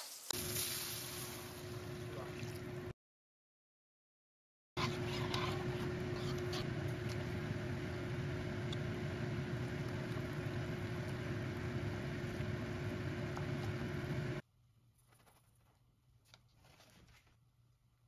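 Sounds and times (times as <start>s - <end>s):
constant low hum: 4.8s - 16.4s.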